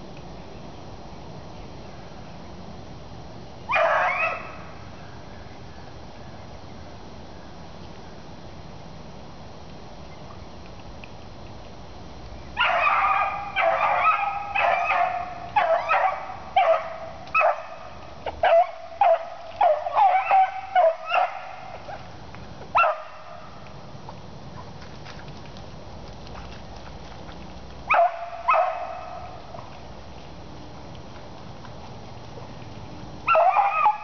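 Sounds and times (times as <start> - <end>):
hound barking: 3.7 - 4.6, 12.6 - 22.0, 22.8 - 23.4, 27.9 - 29.4, 33.3 - 34.0.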